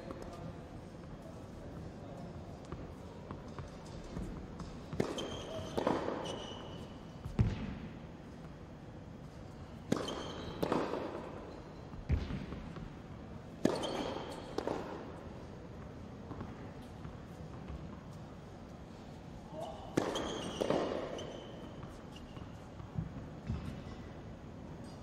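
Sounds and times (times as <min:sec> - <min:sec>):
tennis balls struck and bouncing: 0:02.6 - 0:06.4, 0:07.2 - 0:08.0, 0:09.8 - 0:18.0, 0:19.9 - 0:24.0
shoes squeaking on court: 0:02.6 - 0:07.4, 0:09.2 - 0:12.2, 0:13.5 - 0:14.9, 0:15.9 - 0:24.1.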